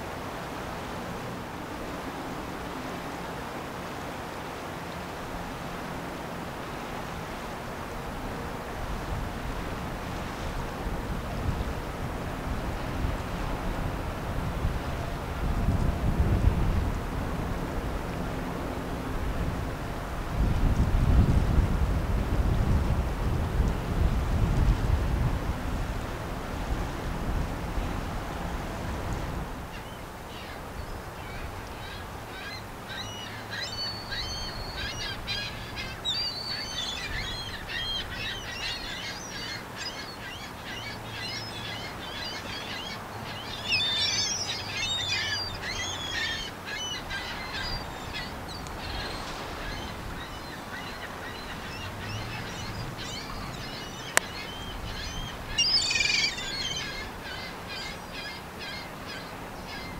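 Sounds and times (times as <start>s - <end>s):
birds chirping and calling: 31.9s - 59.9s.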